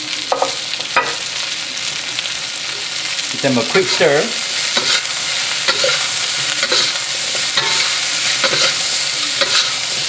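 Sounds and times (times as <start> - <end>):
frying sizzle: 0.0 - 10.0
metal spatula scraping wok: 3.6 - 10.0.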